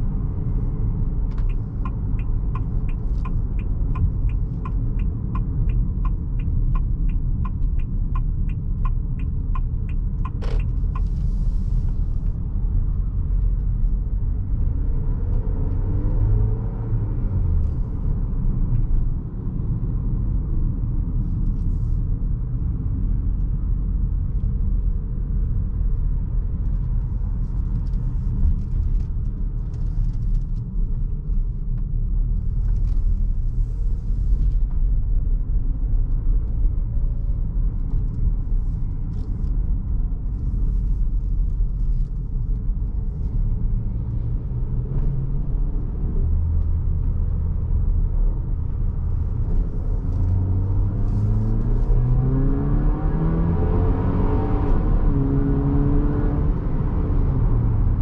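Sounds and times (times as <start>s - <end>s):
turn signal ticking: 0.0s - 16.4s
car engine and road rumble: 0.0s - 58.0s.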